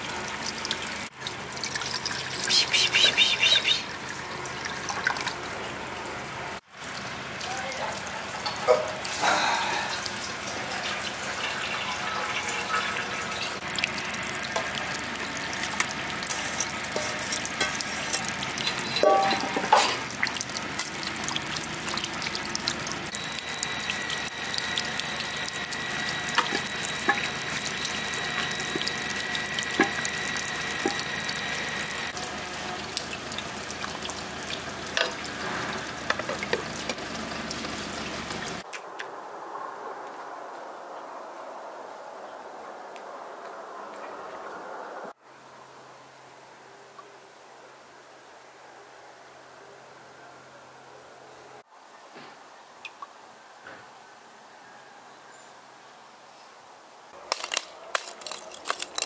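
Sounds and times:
splashing water: 12.6 - 38.7.

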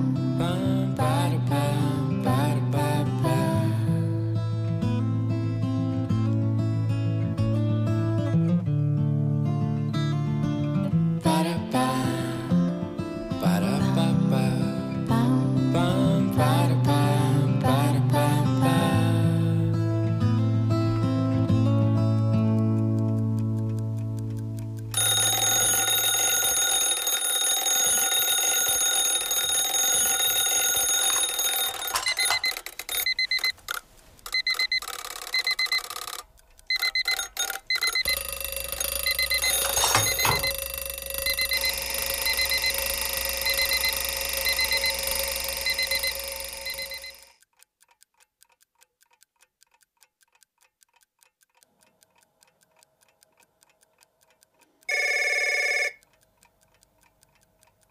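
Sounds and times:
faint clock ticking: 20.9 - 57.9
short high beeps: 31.9 - 47.3
electronic alarm tone: 34.4 - 47.4, 54.9 - 56.0.

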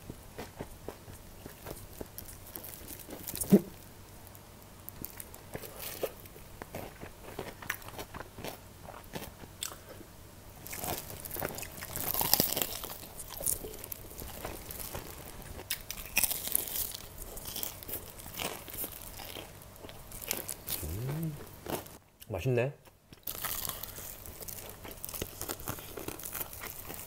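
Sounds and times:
crunching fried chicken: 0.3 - 22.0, 23.1 - 27.0
chewing: 4.9 - 10.0, 10.6 - 22.0, 22.8 - 27.0.

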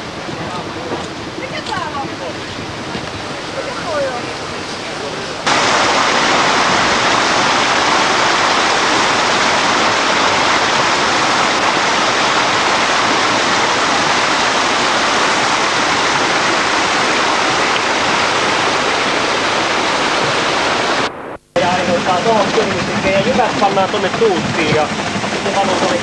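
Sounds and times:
water rushing over rocks: 5.4 - 26.0.

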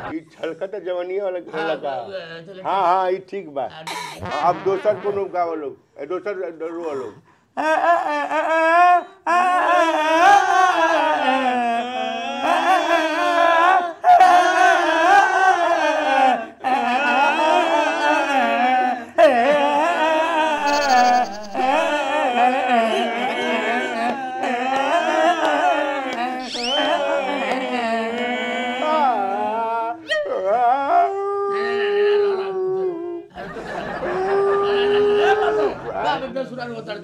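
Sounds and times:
person singing a wailing lament: 7.6 - 33.3.

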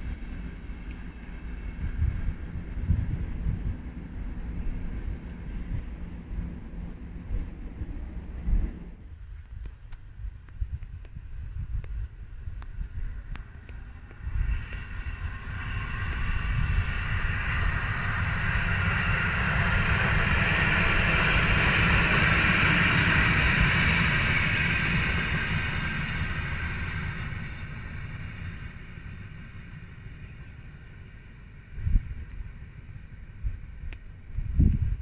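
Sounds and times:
train wheels rumbling on track: 0.0 - 35.0
ringing from train wheels: 13.8 - 33.4.

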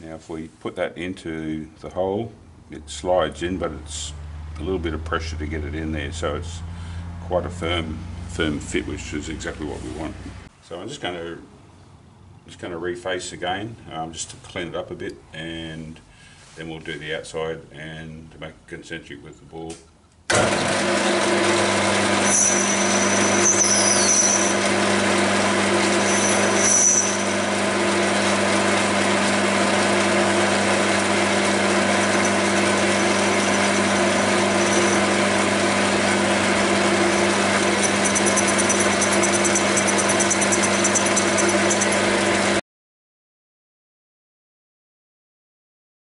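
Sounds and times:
metal lathe cutting: 20.3 - 42.6
high squeals: 22.2 - 24.7, 25.8 - 27.4, 32.0 - 35.4, 36.6 - 42.0.

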